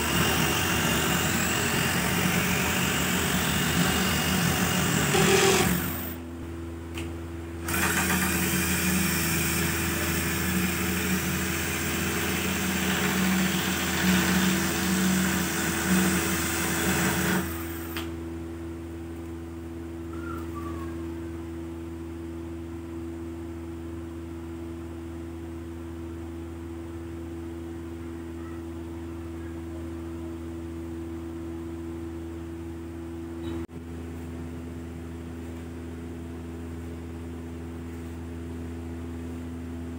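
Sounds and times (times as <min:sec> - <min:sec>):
cordless drill spinning: 0:00.0 - 0:06.2, 0:07.6 - 0:18.0.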